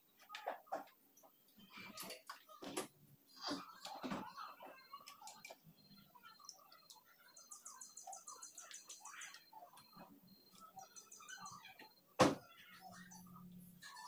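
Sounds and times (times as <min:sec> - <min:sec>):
rapid trill of high chirps: 0:04.4 - 0:14.0.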